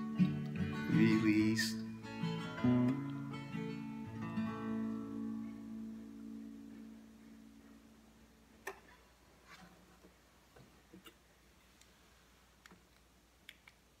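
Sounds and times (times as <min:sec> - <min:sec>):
acoustic guitar chord: 0:00.0 - 0:08.0.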